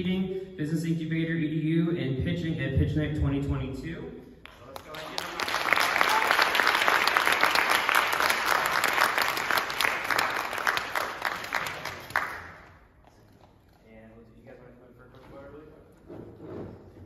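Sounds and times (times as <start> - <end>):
audience applauding: 4.5 - 12.7.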